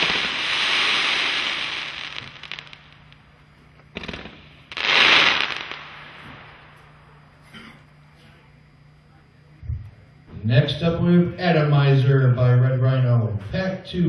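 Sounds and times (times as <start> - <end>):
sharp firework shot: 0.0 - 3.3, 3.9 - 6.8
fireworks crackling: 0.0 - 7.1.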